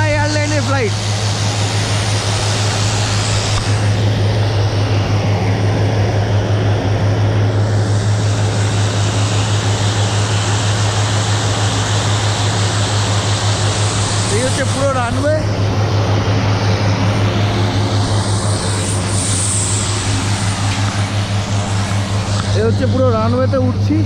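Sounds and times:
turboprop engines droning: 0.0s - 24.0s.

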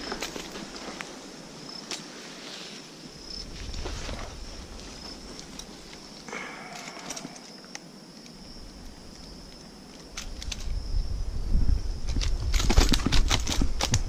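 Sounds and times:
short rustle: 0.0s - 6.2s
small clicks: 6.7s - 8.4s, 9.2s - 10.8s.

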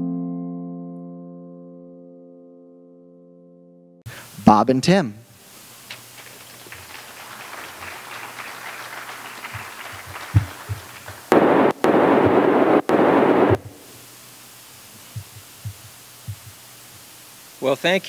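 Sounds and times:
microphone crackling static: 4.1s - 18.0s
audience applause: 5.9s - 11.7s
low thumps on microphone: 10.0s - 12.6s, 13.2s - 13.8s, 15.1s - 16.6s.

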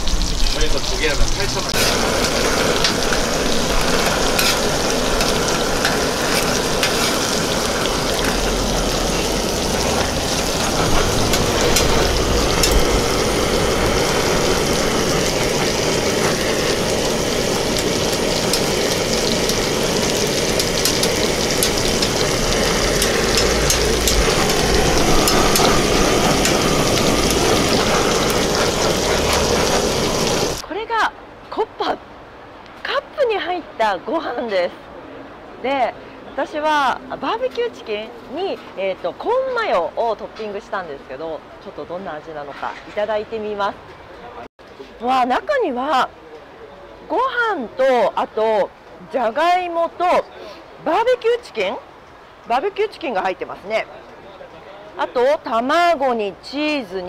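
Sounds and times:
food sizzling on griddle: 0.0s - 30.6s.

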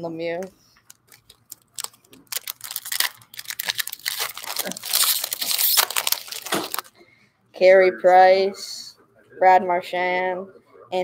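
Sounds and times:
foil wrapper crinkling: 0.9s - 6.9s.

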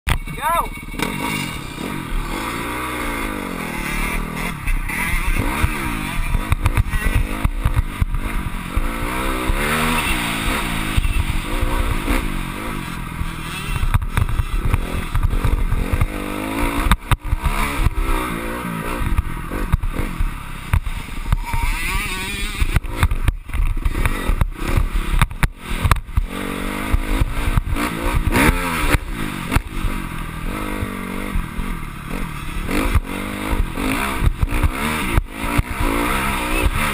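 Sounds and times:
motocross bike engine revving: 0.1s - 36.9s.

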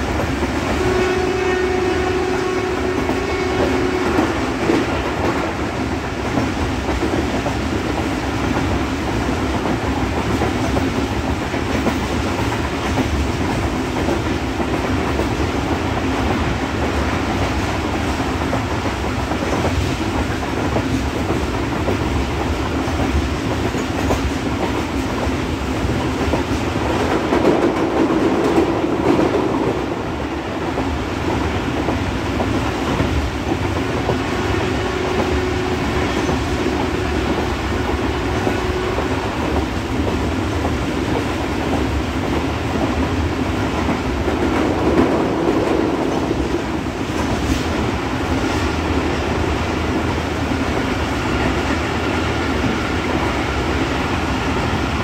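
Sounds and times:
train coaches clattering: 0.0s - 55.0s
train wheels rumbling on rails: 0.0s - 55.0s.

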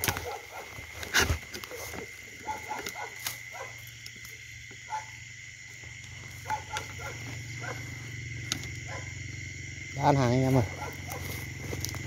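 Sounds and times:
brush rustling: 0.0s - 3.9s.

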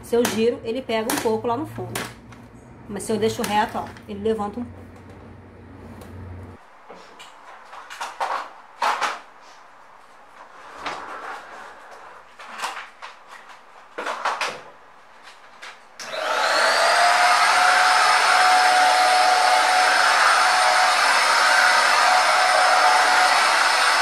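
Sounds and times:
vacuum cleaner motor whine: 16.0s - 24.0s.

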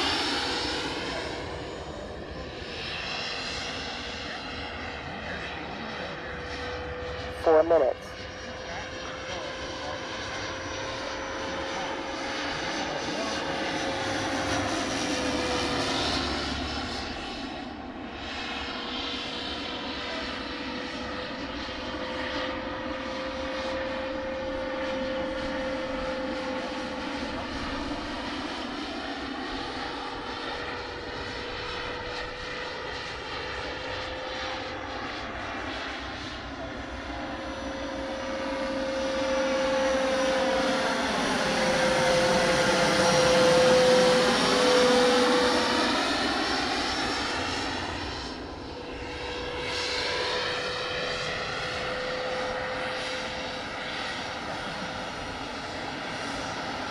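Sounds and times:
model helicopter motor and rotor: 23.3s - 56.9s.

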